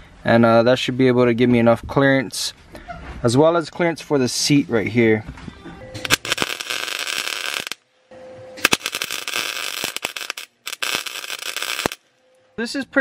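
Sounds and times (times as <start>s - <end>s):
welder crackling: 6.0s - 7.9s, 8.6s - 12.1s.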